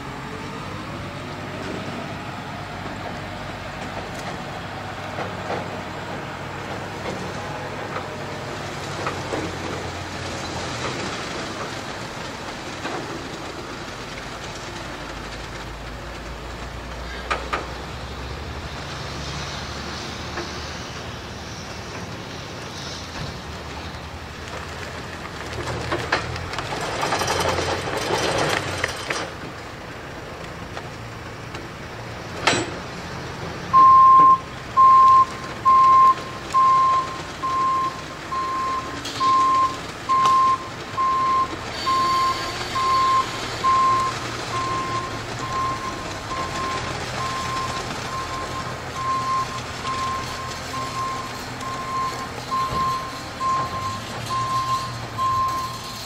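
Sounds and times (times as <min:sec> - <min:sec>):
engine running: 0:00.0 - 0:56.0
reversing alarm beeps: 0:33.7 - 0:56.0.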